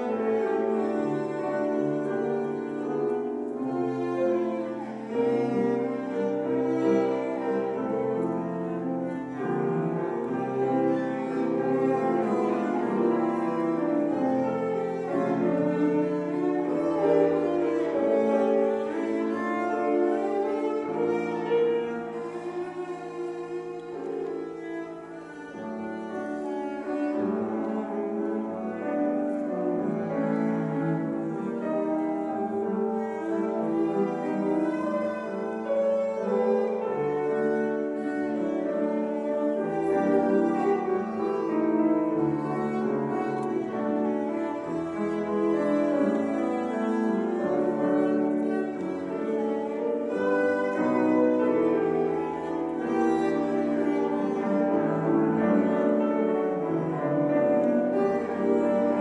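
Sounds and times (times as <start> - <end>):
cello bowed notes: 0.0 - 59.0
piano accompaniment: 0.0 - 59.0.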